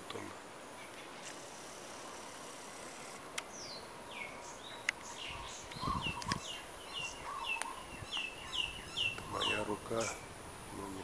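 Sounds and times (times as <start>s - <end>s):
high insect buzz: 0.2s - 11.0s
bird whistling calls: 3.6s - 10.3s
microphone handling clicks: 5.7s - 6.5s.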